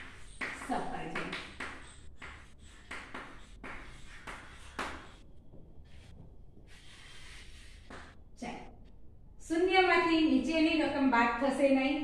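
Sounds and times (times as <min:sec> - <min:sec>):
chalk scratching on blackboard: 0:00.0 - 0:08.2.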